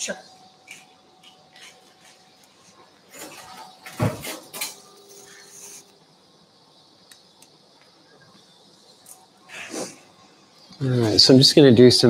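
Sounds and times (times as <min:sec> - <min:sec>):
electrosurgical unit tone: 0:00.0 - 0:12.0
faint hiss: 0:03.9 - 0:12.0.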